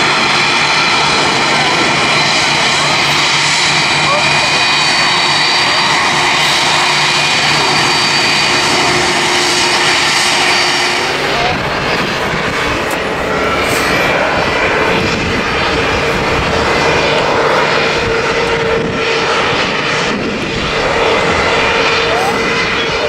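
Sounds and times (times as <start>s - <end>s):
jet engines roaring: 0.0s - 23.0s
wind rumble on microphone: 4.7s - 23.0s.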